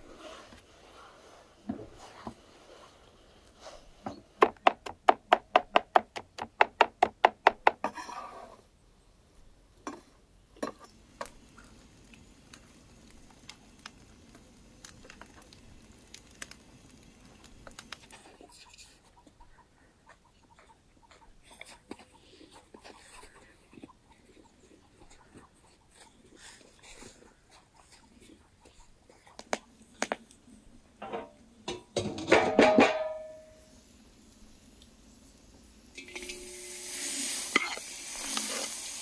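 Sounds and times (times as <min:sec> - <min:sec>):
wood fire crackling: 0:10.8 - 0:18.4, 0:32.4 - 0:39.0.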